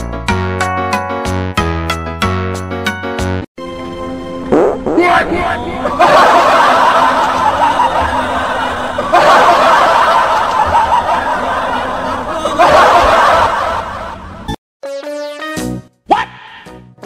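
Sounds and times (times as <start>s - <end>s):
laughter: 5.8s - 14.5s.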